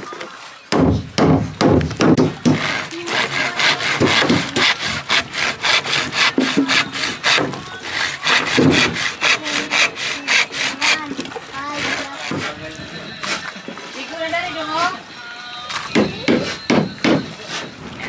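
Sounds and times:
hand saw cutting bamboo: 1.2 - 12.6, 13.2 - 13.5, 16.3 - 17.8.

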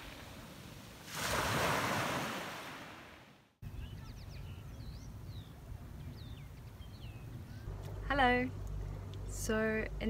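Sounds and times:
surf washing up a beach: 0.0 - 3.3
low steady rumble: 5.6 - 10.0.

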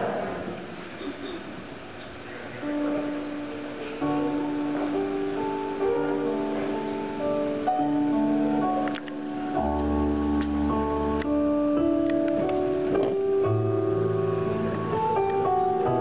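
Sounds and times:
keyboard playing slow chords: 2.6 - 16.0.

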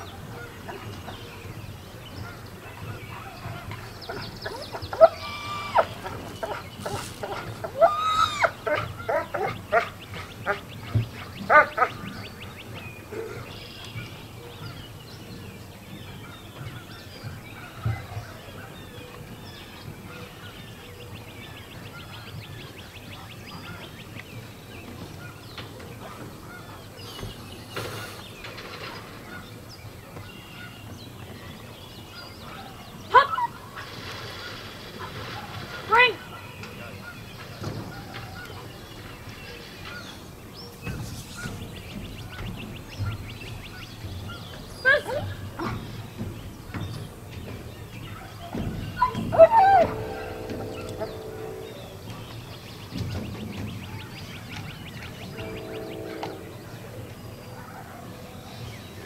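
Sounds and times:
dog whining and yelping: 49.0 - 50.3.

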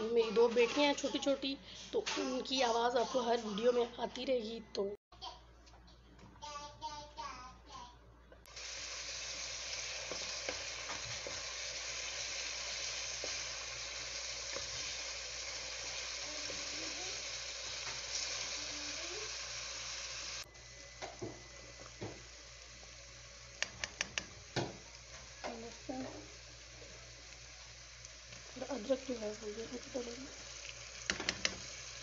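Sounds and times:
onions sizzling in oil: 8.5 - 32.0.

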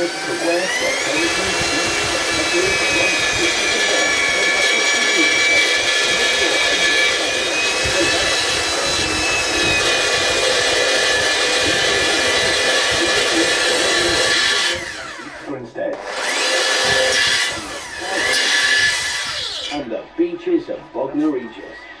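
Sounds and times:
electric drill whining: 0.0 - 19.9.

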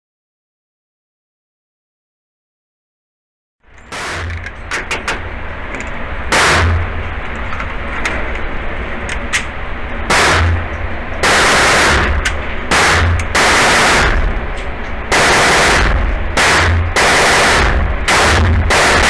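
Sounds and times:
pistol shots echoing indoors: 6.3 - 6.9, 10.1 - 10.6, 11.2 - 14.3, 15.1 - 19.0.

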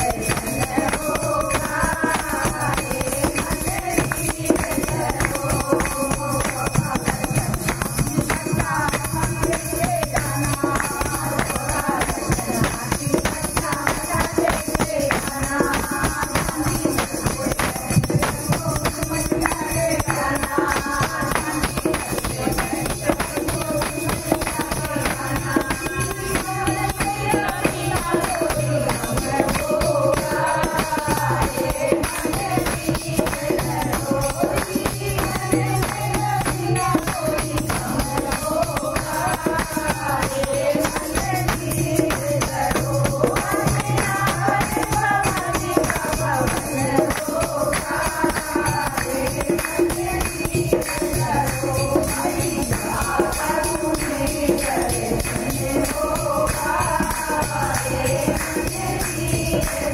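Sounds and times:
jingle clappers: 0.0 - 59.9
tambourines shaken and struck: 0.0 - 59.9
women singing devotional song: 0.0 - 59.9.

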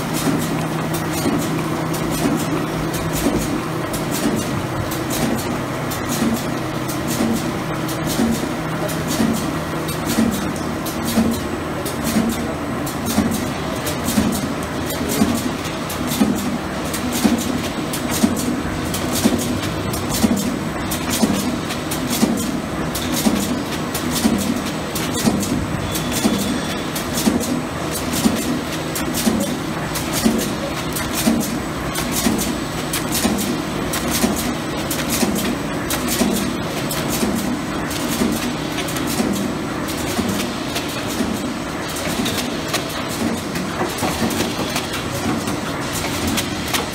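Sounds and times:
mechanical clatter and clicking: 0.0 - 46.9
packaging machine running: 0.0 - 46.9.

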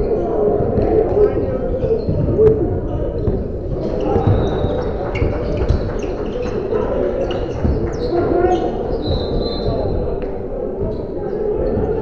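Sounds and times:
background chatter: 0.0 - 12.0
basketball bouncing: 3.2 - 10.0
sneakers squeaking on court: 3.2 - 10.1.

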